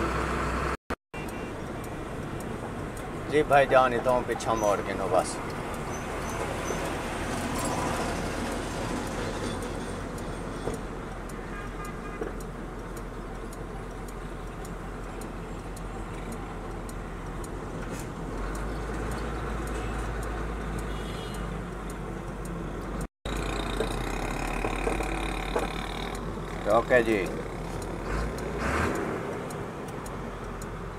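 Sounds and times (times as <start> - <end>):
road noise inside cab: 0.0 - 30.9
turn indicator ticking: 1.2 - 30.9
truck engine running: 21.9 - 30.9.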